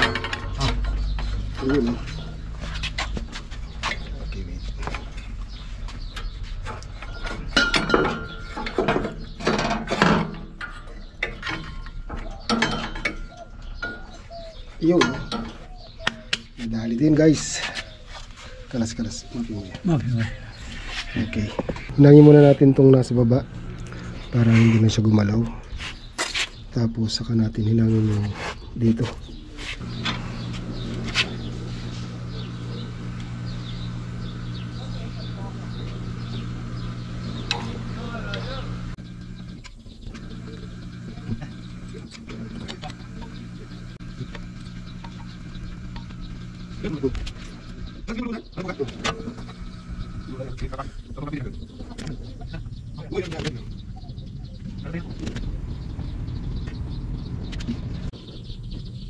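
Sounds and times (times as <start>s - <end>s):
tools and metal parts clanking: 0.0s - 2.3s, 6.6s - 14.2s, 14.8s - 15.7s
small birds chirping: 0.0s - 59.0s
torch burning hum: 22.0s - 25.1s, 29.8s - 58.1s.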